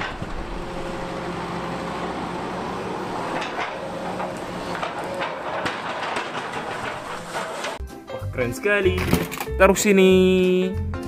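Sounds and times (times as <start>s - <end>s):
excavator diesel engine running: 0.0s - 7.8s.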